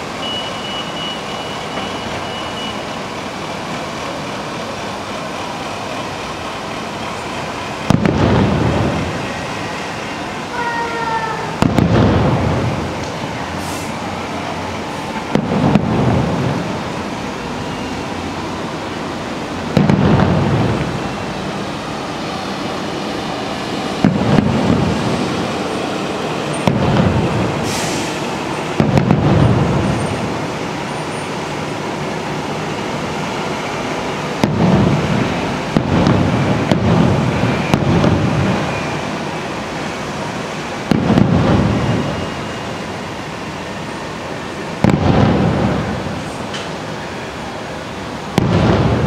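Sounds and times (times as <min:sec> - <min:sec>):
fireworks bursting with booms: 0:00.0 - 0:14.0, 0:15.0 - 0:17.8, 0:19.6 - 0:21.6, 0:24.0 - 0:25.7, 0:26.4 - 0:30.9, 0:34.2 - 0:42.8, 0:44.6 - 0:46.8, 0:48.2 - 0:49.0
steady background noise: 0:00.0 - 0:49.0.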